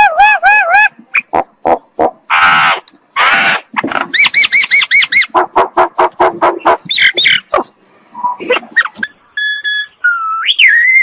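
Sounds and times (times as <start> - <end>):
myna squawking and whistling: 2.3 - 11.0.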